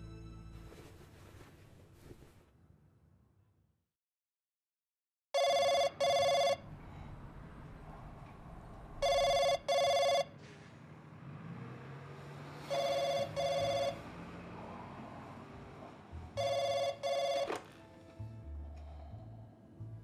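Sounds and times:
telephone ringing: 0:05.4 - 0:06.6, 0:09.0 - 0:10.3, 0:12.7 - 0:14.0, 0:16.4 - 0:17.8.

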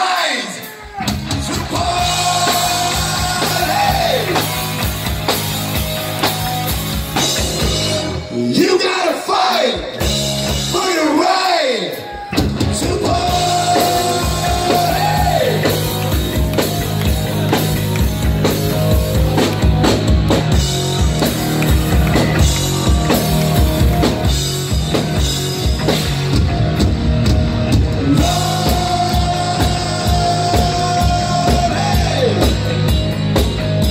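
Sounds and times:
drum kit: 0:00.0 - 0:08.8, 0:09.5 - 0:11.2, 0:12.0 - 0:33.9
electric guitar: 0:00.6 - 0:08.6, 0:12.0 - 0:33.9
bass guitar: 0:00.8 - 0:08.8, 0:09.8 - 0:11.0, 0:12.2 - 0:33.9
person singing: 0:01.3 - 0:04.6, 0:12.6 - 0:16.0, 0:28.0 - 0:32.7.

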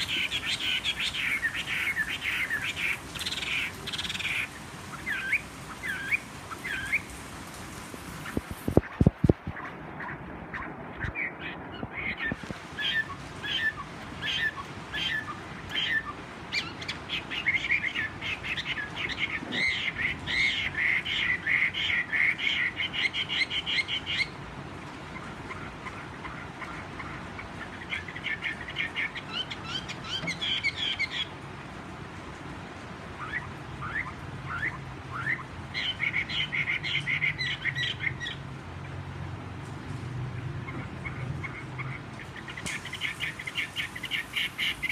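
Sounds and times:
bird singing rapid notes: 0:40.6 - 0:44.9.

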